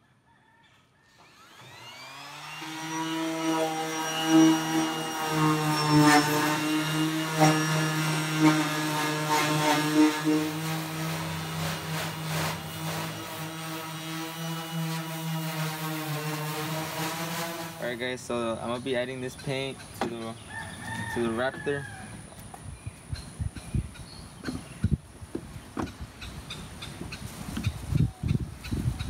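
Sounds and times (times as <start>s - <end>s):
orbital sander humming: 1.2s - 19.7s
sander pad scraping sheet metal: 1.2s - 20.3s.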